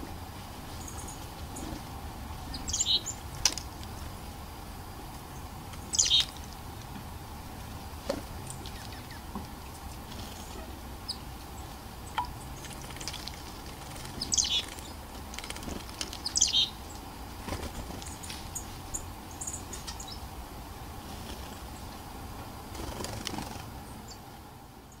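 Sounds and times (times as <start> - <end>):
faint high bird chirps: 2.5 - 3.2, 5.9 - 6.3, 14.2 - 14.8, 16.2 - 16.8
fluttering bird wings: 12.6 - 16.4, 17.4 - 18.6, 21.1 - 21.6, 22.7 - 23.8.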